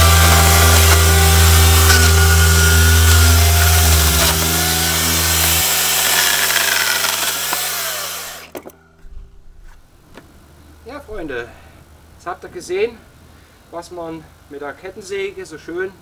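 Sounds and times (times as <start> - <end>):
electric chainsaw cutting wood: 0.0 - 8.7.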